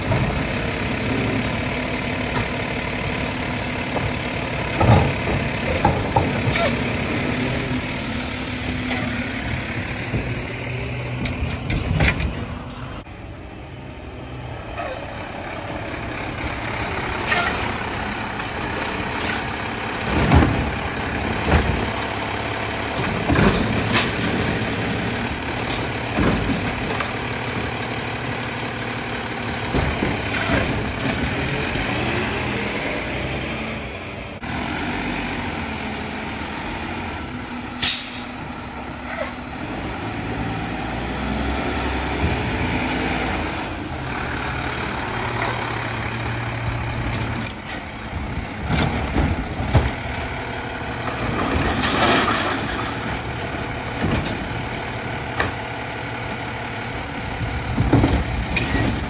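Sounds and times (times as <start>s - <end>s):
garbage truck engine and hydraulics: 0.0s - 59.0s
air brakes hissing: 37.8s - 39.4s.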